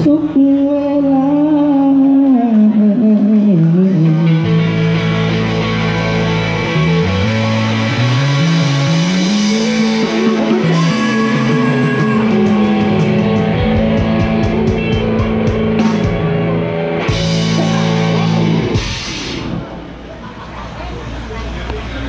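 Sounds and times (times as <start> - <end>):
live rock band instrumental: 3.3 - 20.0
cymbal crash: 9.4 - 14.4.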